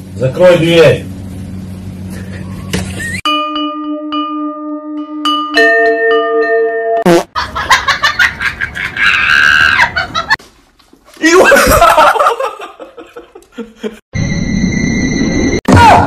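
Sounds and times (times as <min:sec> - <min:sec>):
person laughing hard: 0:07.4 - 0:10.4, 0:11.3 - 0:14.0.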